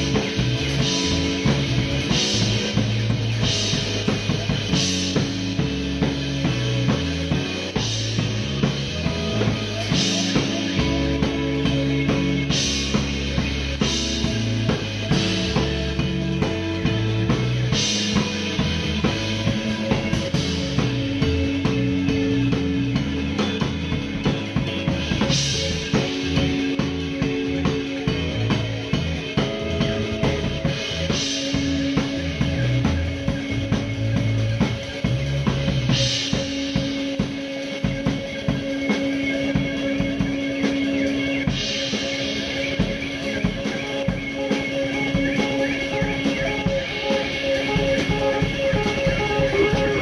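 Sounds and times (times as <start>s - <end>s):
drum kit playing: 0.0s - 50.0s
electric bass: 0.0s - 50.0s
electric guitar holding a note: 44.8s - 50.0s.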